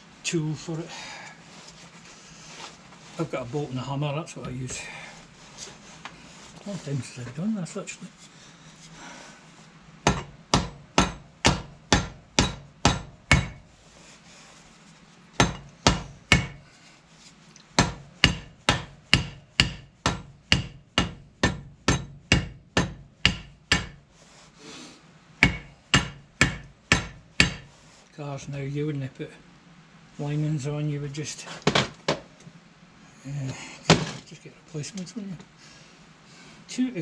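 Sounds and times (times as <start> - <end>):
hammer striking metal bolt: 10.1 - 13.6, 17.8 - 24.0, 25.4 - 27.6.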